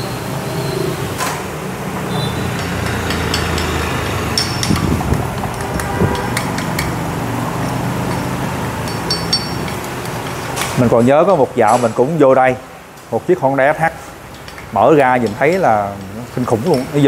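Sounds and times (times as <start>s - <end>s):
metal tools clinking: 2.5s - 10.9s, 14.3s - 17.0s.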